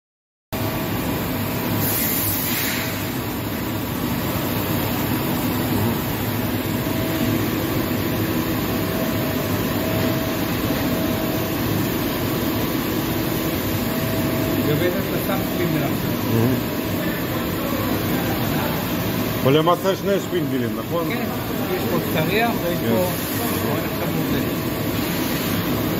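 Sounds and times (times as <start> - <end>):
coolant spray hissing: 1.8 - 3.1, 25.0 - 25.8
machine drives humming: 3.0 - 25.9
steady machine tones: 3.1 - 24.9.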